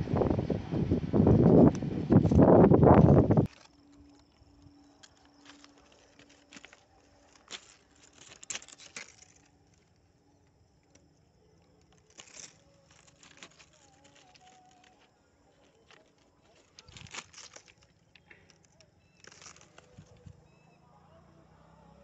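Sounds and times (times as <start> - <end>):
ballast stones clicking and crunching: 3.0 - 20.4.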